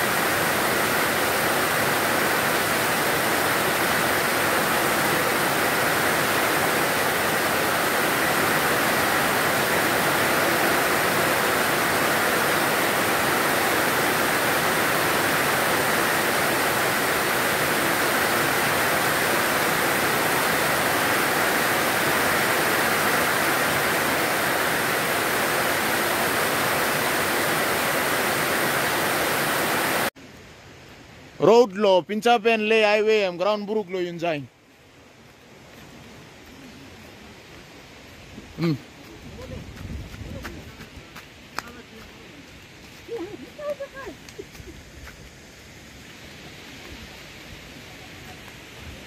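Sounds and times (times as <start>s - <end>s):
water streaming off a roof: 0.0s - 30.2s
torrential rain pouring: 0.0s - 31.5s, 35.2s - 49.0s.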